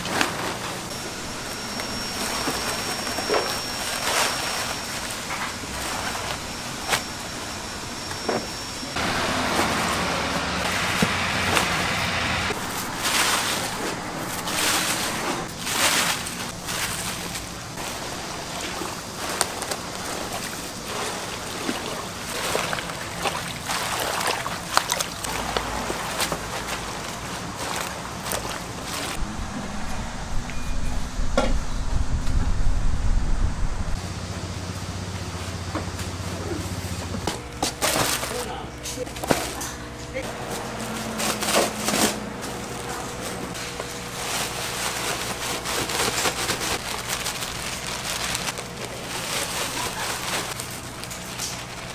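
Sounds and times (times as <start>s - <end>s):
cabbage leaves rustling and crunching: 0.0s - 7.1s, 9.0s - 30.1s, 37.7s - 39.6s, 40.3s - 51.9s
salt scattering on leaves: 44.1s - 51.9s.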